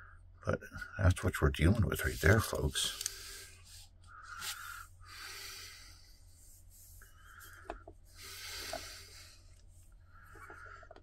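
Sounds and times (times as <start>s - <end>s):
person breathing softly: 2.1s - 11.0s.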